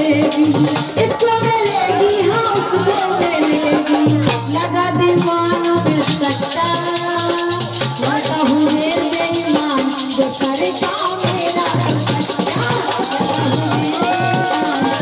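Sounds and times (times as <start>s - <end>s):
fast percussion beat: 0.0s - 15.0s
person singing folk song: 8.4s - 15.0s.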